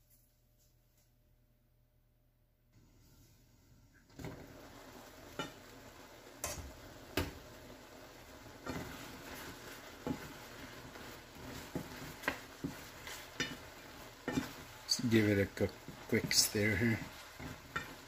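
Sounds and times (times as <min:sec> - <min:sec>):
mushrooms sizzling in a skillet: 0:04.0 - 0:18.0
wooden spoon knocking against pan: 0:10.0 - 0:14.7, 0:17.3 - 0:18.0.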